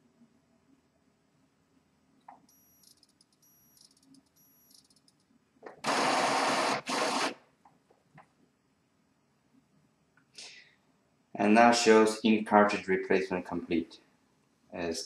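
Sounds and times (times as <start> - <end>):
high-pitched printer motor whine: 5.9 - 7.3.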